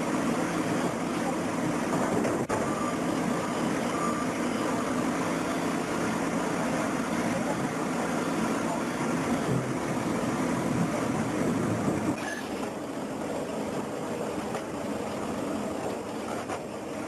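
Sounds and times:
diesel engine running under load: 0.0s - 17.0s
faint short beeps: 2.5s - 5.7s.

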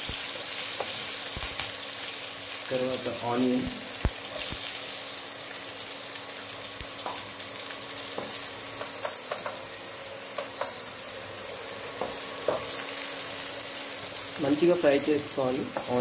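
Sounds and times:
onions sizzling in hot oil: 0.0s - 16.0s
spatula ticks and taps: 8.2s - 9.6s, 10.4s - 10.8s.

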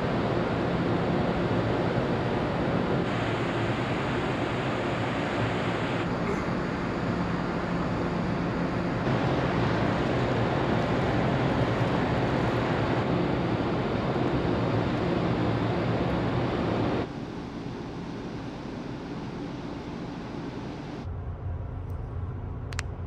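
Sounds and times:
ferry engines droning: 0.0s - 23.0s.

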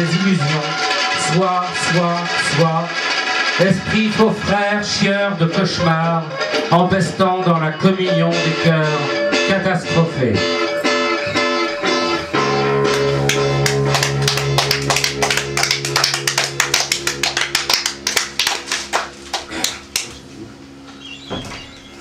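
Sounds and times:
people clapping: 0.0s - 4.6s, 11.8s - 20.2s
guitar chord ringing: 7.6s - 18.5s.

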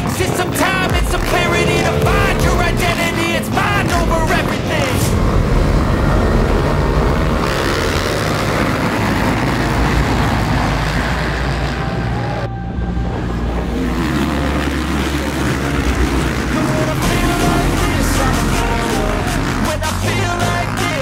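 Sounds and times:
motocross bikes revving: 0.0s - 21.0s.

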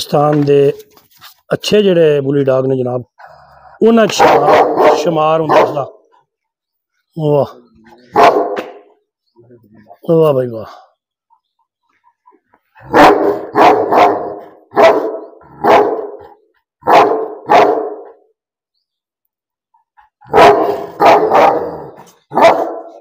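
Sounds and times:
dog barking: 4.1s - 6.0s, 8.1s - 8.8s, 12.8s - 18.2s, 20.2s - 23.0s.

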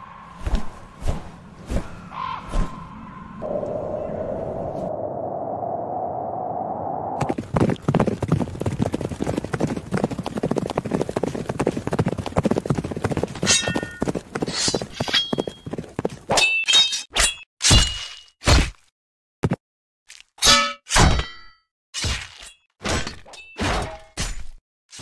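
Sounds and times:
horses galloping: 7.2s - 16.3s
ringing metal clangs: 20.4s - 21.6s.

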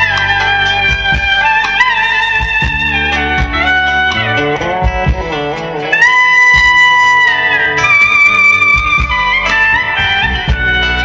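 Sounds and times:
clarinet melody: 0.0s - 11.0s
drums: 0.0s - 11.0s
plucked strings: 0.0s - 11.0s.

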